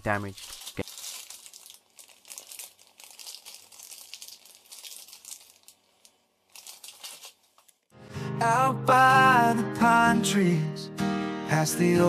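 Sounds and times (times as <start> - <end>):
plastic bags crinkling: 0.0 - 7.9.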